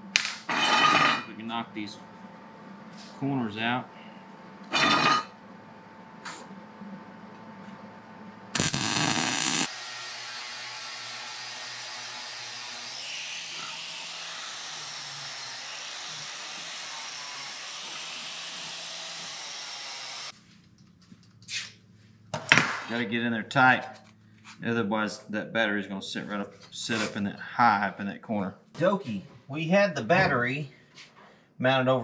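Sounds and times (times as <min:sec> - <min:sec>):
wire-feed welding burst: 0:08.6 - 0:09.8
angle grinder grinding steel: 0:08.6 - 0:20.3.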